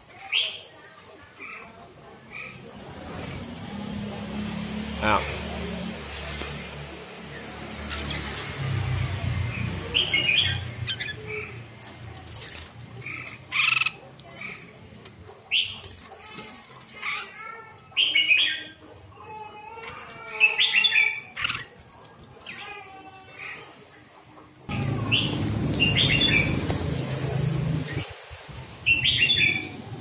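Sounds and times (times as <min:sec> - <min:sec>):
wings fluttering: 0:10.8 - 0:13.8.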